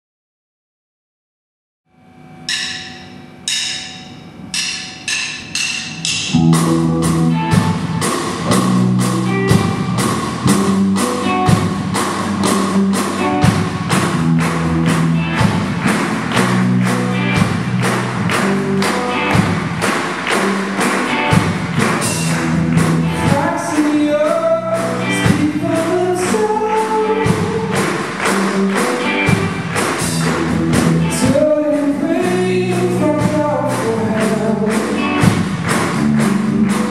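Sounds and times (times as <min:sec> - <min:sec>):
sharp drum hits: 0:02.5 - 0:23.6
rock band playing: 0:02.5 - 0:36.9
man singing: 0:23.1 - 0:27.9, 0:31.0 - 0:35.2.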